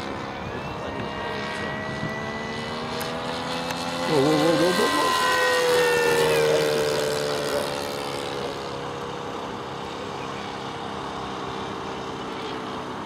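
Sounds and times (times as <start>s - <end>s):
model airplane engine droning: 0.0s - 13.0s.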